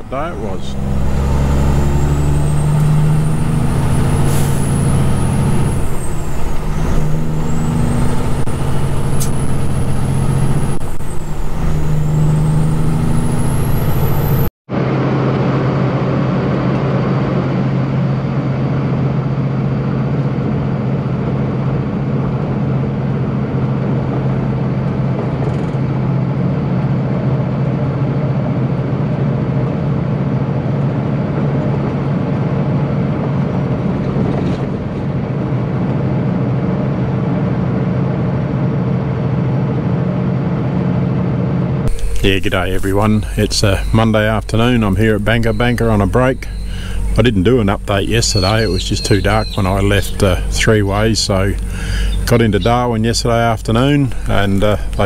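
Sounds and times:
high engine whistle: 0.0 - 14.5, 41.9 - 52.9
truck diesel engine: 0.0 - 55.0.

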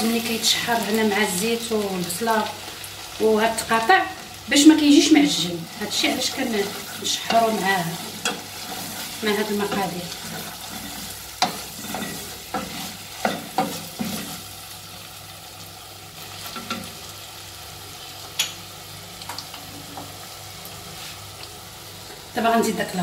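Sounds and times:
food sizzling in oil: 0.0 - 23.0
wooden spoon scraping a pot: 5.8 - 14.5.

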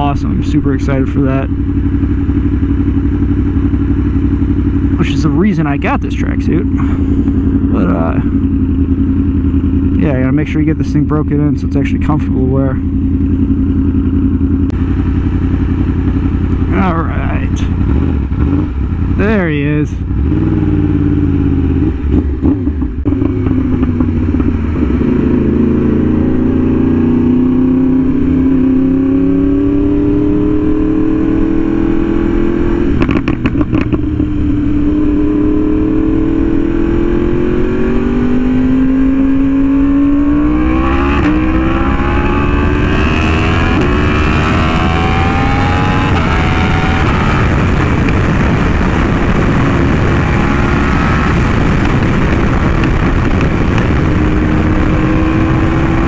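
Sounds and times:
motorcycle engine revving: 0.0 - 56.0
wind noise: 13.0 - 56.0.

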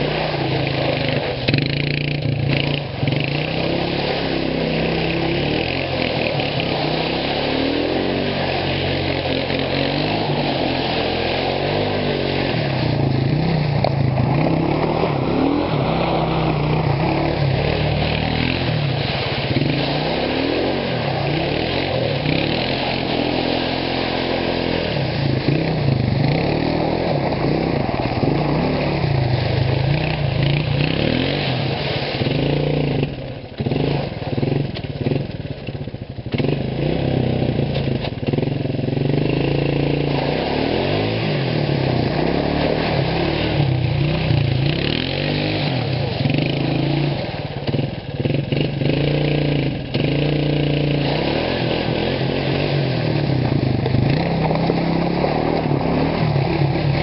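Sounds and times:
atv engine revving: 0.0 - 57.0.

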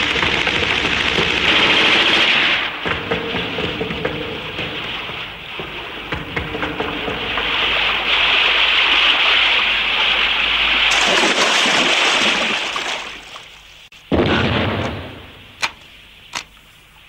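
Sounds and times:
fast river water rushing: 5.4 - 13.4.

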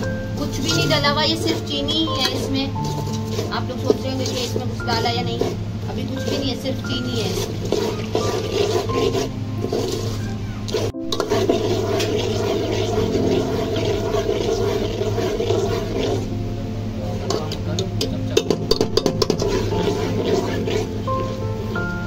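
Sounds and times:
low steady hum: 0.0 - 22.0
metal spoon scraping a pot: 0.6 - 16.3, 18.3 - 21.4
spoon clinking against pot: 18.3 - 20.6.

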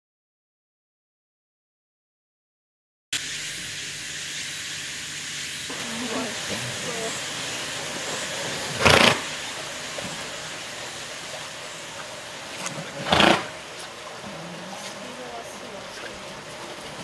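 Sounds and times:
steady background hiss: 3.2 - 17.0
horse blowing through nostrils: 8.5 - 9.4, 12.6 - 15.1.

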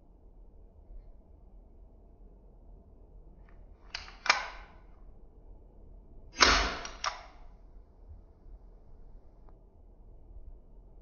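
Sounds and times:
sharp click: 3.9 - 4.7, 6.4 - 7.4
airsoft revolver shot: 4.0 - 4.7, 6.4 - 7.4.

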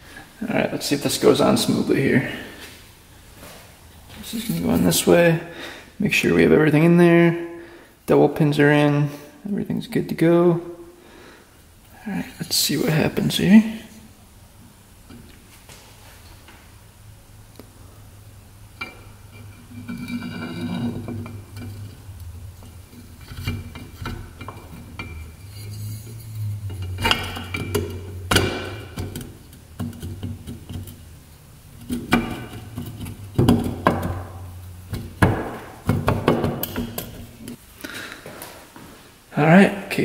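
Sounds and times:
low steady hum: 0.0 - 38.0
metal clinks and knocks: 18.8 - 31.2, 31.8 - 37.6.

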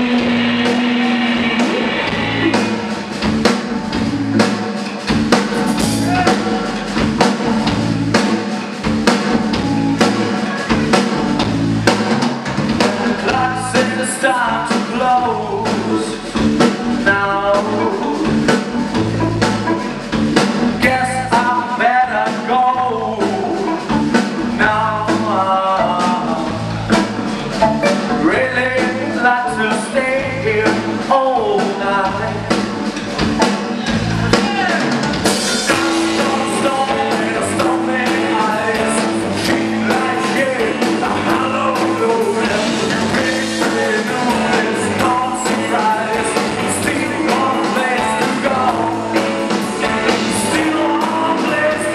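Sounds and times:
person singing: 0.0 - 3.2, 5.6 - 7.6, 12.7 - 20.1, 20.8 - 32.6, 34.3 - 51.9
blues rock band playing: 0.0 - 51.9
cymbals: 5.0 - 7.4.

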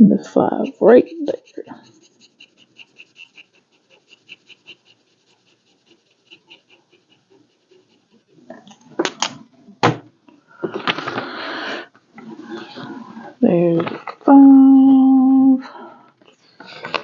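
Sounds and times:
pen scribbling on paper: 0.0 - 8.9
thump: 9.8 - 10.8.

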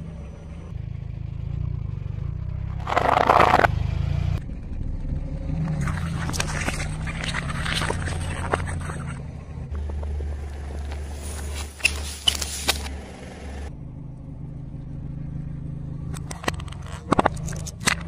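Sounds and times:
car engine idling: 0.0 - 18.0
tyre crushing small objects: 2.8 - 3.7.

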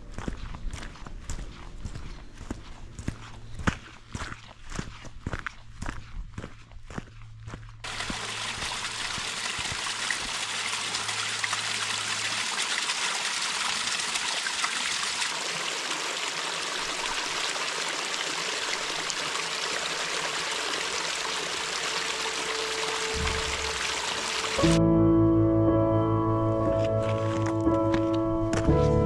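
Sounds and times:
stream trickling over rocks: 7.8 - 24.8, 26.6 - 28.2.

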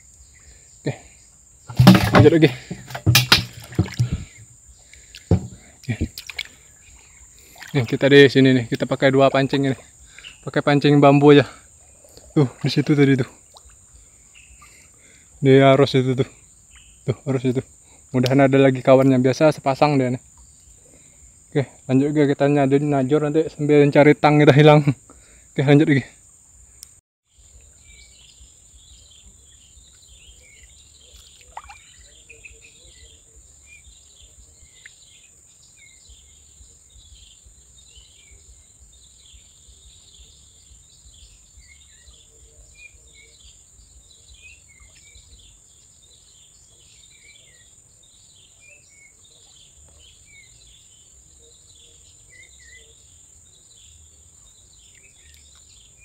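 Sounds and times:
bird chirps: 11.9 - 15.0, 16.6 - 17.5, 27.4 - 56.0.

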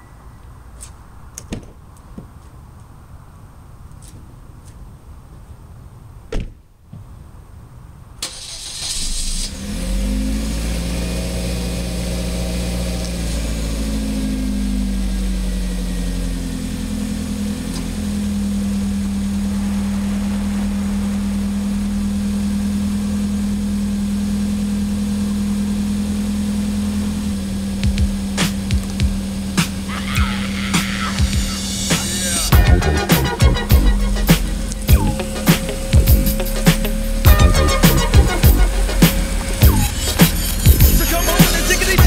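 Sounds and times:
car engine starting and idling: 8.1 - 42.0.

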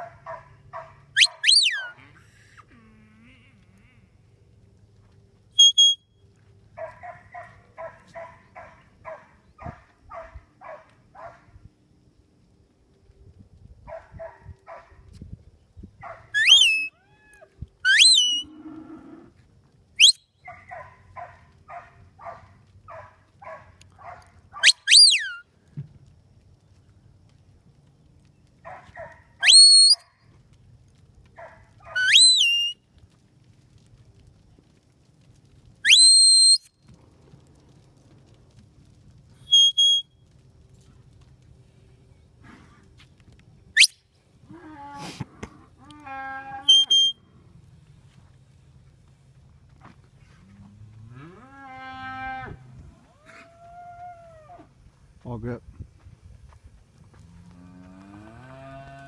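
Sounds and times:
dog barking: 0.0 - 1.9, 6.8 - 11.5, 13.9 - 15.0, 16.0 - 16.4, 20.4 - 24.8, 28.6 - 29.4, 31.4 - 32.1
herding whistle: 1.2 - 1.9, 5.6 - 6.1, 16.4 - 17.0, 17.8 - 18.5, 20.0 - 20.3, 24.6 - 25.4, 29.4 - 30.1, 31.9 - 32.8, 35.8 - 36.7, 39.4 - 40.1, 43.8 - 44.0, 46.6 - 47.2.

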